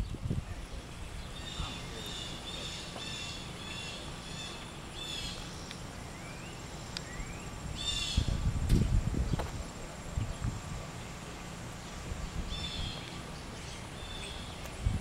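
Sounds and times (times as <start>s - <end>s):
songbirds chirping: 0.0s - 15.0s
rising whistled calls: 0.6s - 8.4s
low thuds and rumble: 8.3s - 10.6s.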